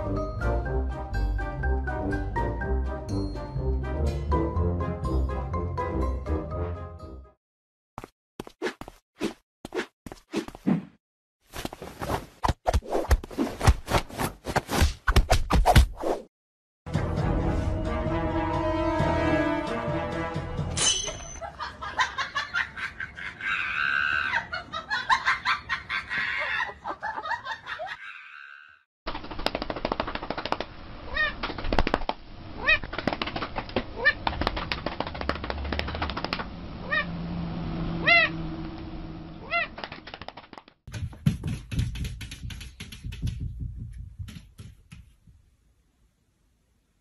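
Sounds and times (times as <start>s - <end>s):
person laughing and shrieking: 23.0s - 28.8s
pigeon wings clattering: 29.1s - 32.2s, 32.8s - 36.5s, 39.8s - 45.0s.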